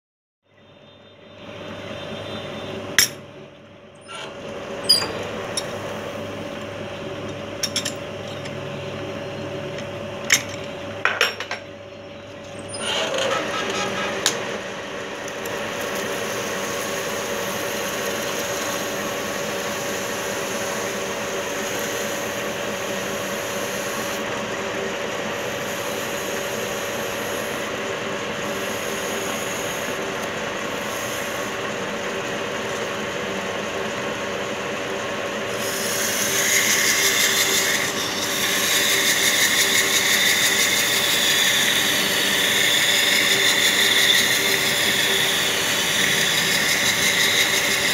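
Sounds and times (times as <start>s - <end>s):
metal lathe humming: 1.4s - 47.9s
hiss of tool against spinning steel: 16.2s - 24.2s, 25.4s - 27.7s, 28.4s - 30.0s, 30.7s - 31.6s, 35.5s - 47.9s.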